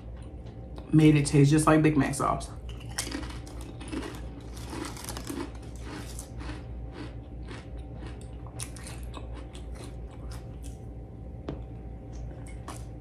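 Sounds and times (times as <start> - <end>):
person chewing crunchy chips: 2.6 - 11.0, 12.0 - 13.0.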